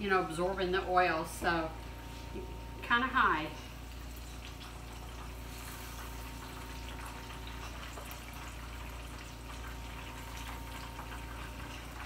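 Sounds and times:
food sizzling in hot oil: 0:03.7 - 0:12.0.

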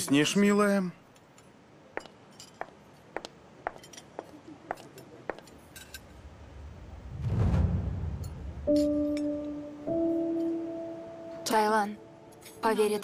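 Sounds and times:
low rumbling swell: 0:06.2 - 0:08.7.

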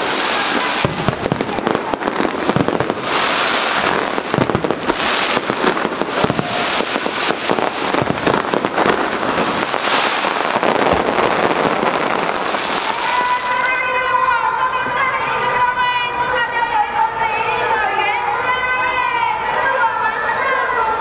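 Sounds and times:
fireworks bursting and crackling: 0:00.0 - 0:15.7.

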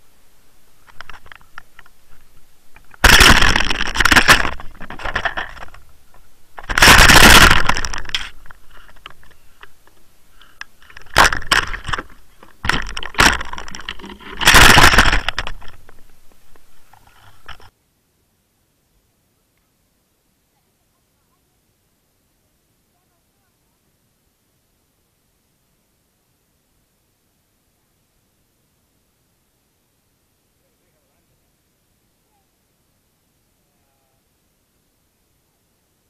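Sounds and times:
camera crackling and scraping: 0:00.7 - 0:17.7.

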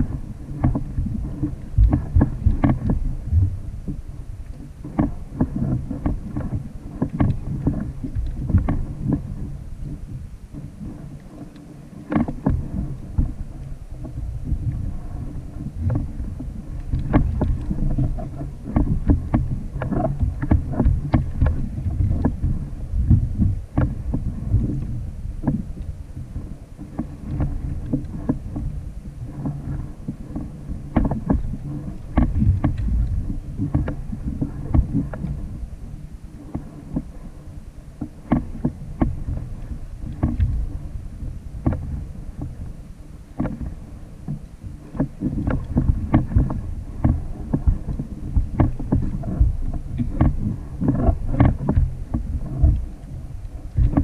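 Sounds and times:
water slapping kayak hull: 0:00.0 - 0:54.0
wind rumble on microphone: 0:00.0 - 0:54.0
knocks and clicks: 0:18.7 - 0:25.6.

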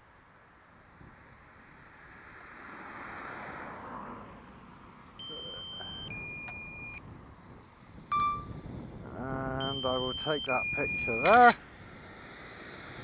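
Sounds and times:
remote controller beeps: 0:05.2 - 0:07.0, 0:08.1 - 0:08.5, 0:09.5 - 0:11.3.

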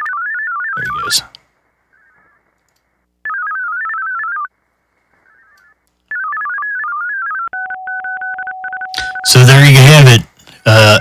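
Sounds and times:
warbling modem tones: 0:00.0 - 0:11.0
receiver hiss: 0:00.8 - 0:03.4.

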